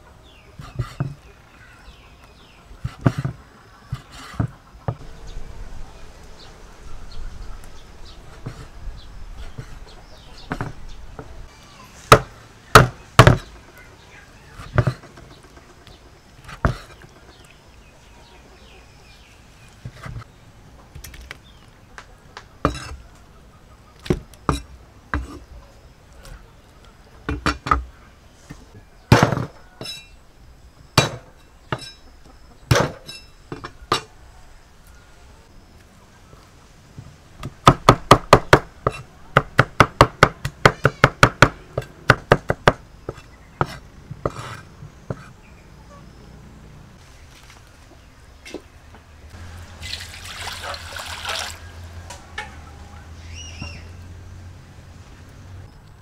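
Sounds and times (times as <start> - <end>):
cleaver chopping on wooden block: 12.1 - 13.5, 37.4 - 45.3.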